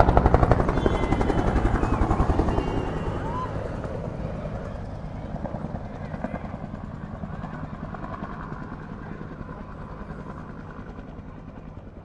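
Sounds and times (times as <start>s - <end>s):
helicopter rotor beating: 0.0s - 12.0s.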